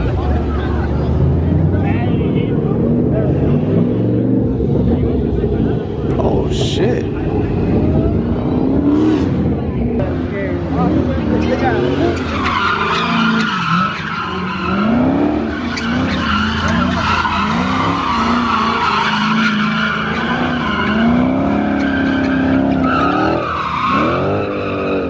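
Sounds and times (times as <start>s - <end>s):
car engine revving: 0.0s - 25.0s
tyres squealing: 11.4s - 25.0s.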